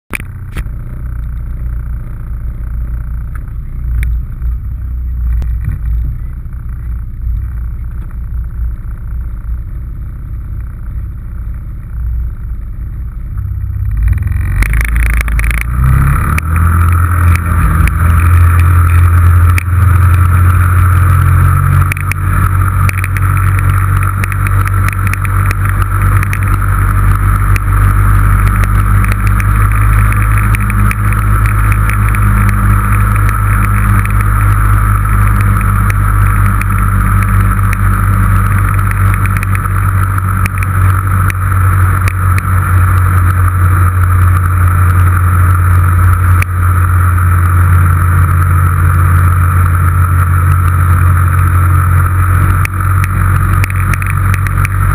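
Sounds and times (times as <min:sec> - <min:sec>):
vehicle engine idling and revving: 0:00.0 - 0:54.9.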